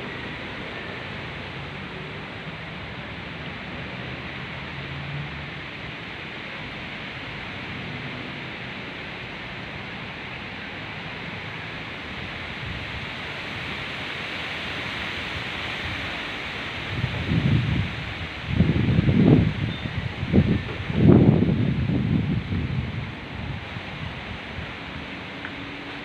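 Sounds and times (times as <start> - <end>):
wind rustling palm fronds: 0.0 - 26.0.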